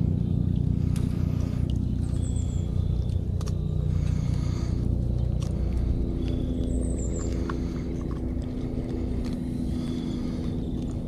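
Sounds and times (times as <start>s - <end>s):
boat motor humming: 0.0s - 11.0s.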